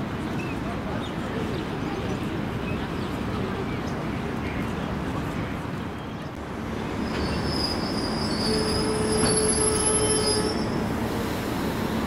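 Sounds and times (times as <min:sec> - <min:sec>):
rail noise rumble: 0:00.0 - 0:12.0
railway wheels squealing: 0:06.9 - 0:12.0.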